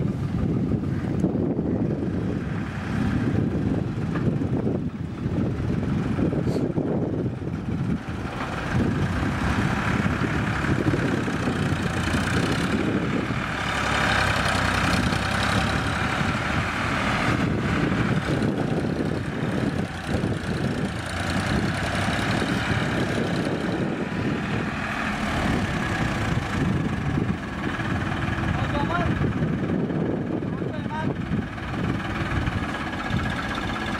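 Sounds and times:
diesel tractor engine running: 0:00.0 - 0:33.9.

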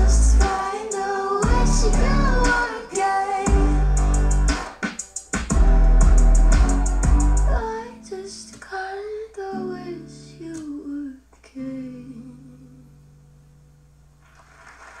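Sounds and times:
woman singing over held chords: 0:00.0 - 0:04.1, 0:07.5 - 0:13.0.

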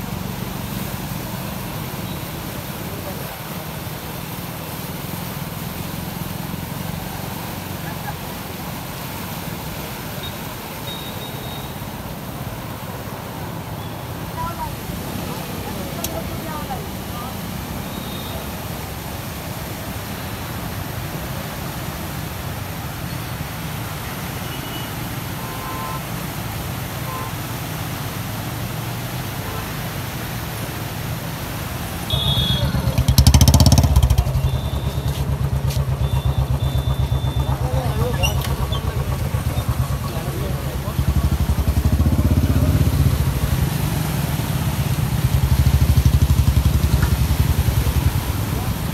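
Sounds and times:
floodwater rushing: 0:00.0 - 0:48.9
motorcycle engine idling: 0:32.1 - 0:43.6, 0:45.2 - 0:48.3.

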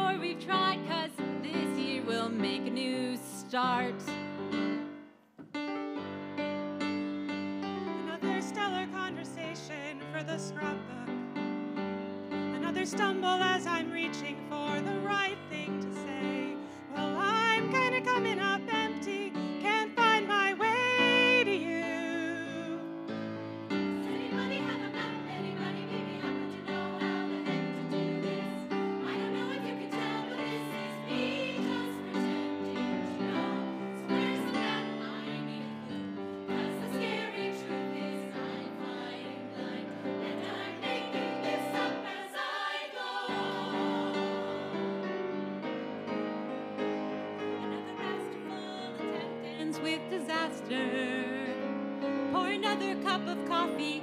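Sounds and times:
piano accompaniment: 0:00.0 - 0:54.0
women's choir singing: 0:12.6 - 0:54.0.

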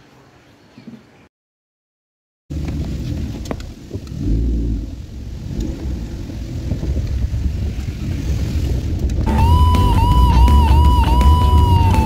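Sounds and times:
car road and engine rumble: 0:02.5 - 0:12.0.

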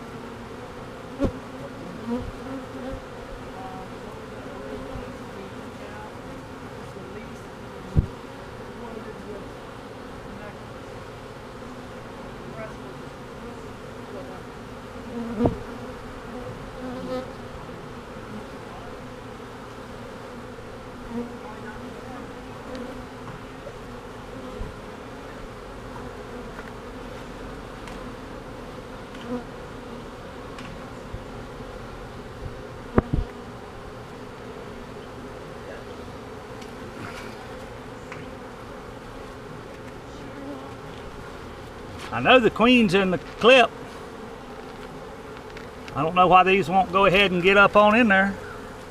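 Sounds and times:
bees humming: 0:00.0 - 0:48.9.

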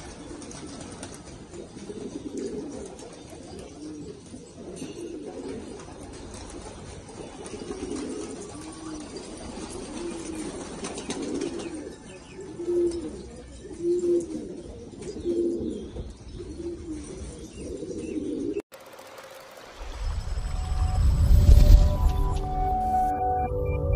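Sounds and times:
pigeon cooing: 0:00.0 - 0:06.1, 0:07.0 - 0:18.6.

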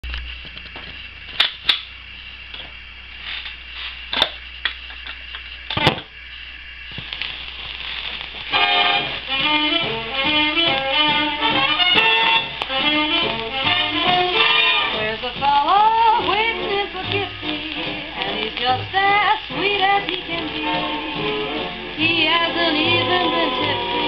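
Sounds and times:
record clicks and pops: 0:00.0 - 0:02.8, 0:03.4 - 0:06.2, 0:06.8 - 0:24.0
record surface hiss: 0:00.0 - 0:24.0
orchestral music: 0:08.6 - 0:15.2.

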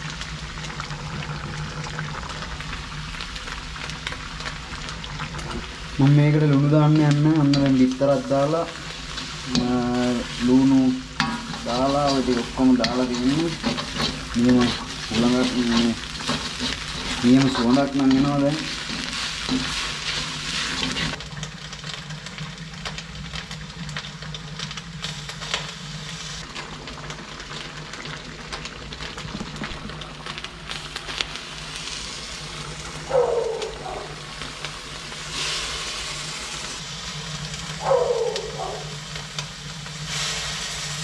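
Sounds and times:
food sizzling in a wok: 0:00.0 - 0:41.0
metal spatula scraping wok: 0:07.4 - 0:21.2
animal crying out: 0:33.1 - 0:34.2, 0:37.8 - 0:39.0.

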